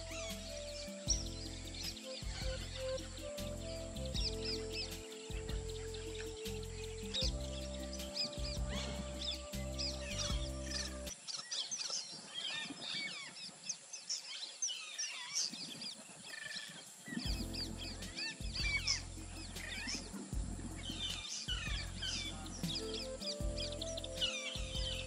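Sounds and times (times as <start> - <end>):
music with low held notes: 0.0 - 11.1, 17.3 - 25.0
small birds chirping: 0.0 - 25.0.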